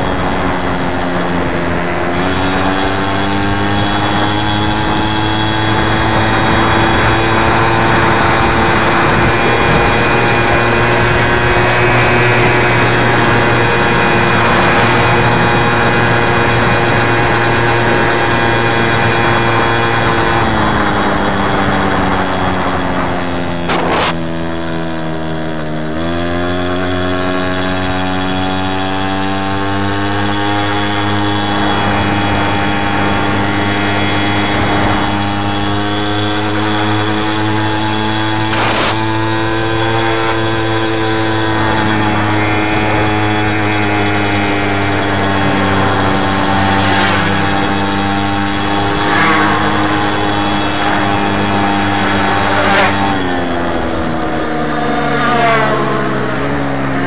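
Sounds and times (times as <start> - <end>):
moped two-stroke engine running: 0.0 - 57.0.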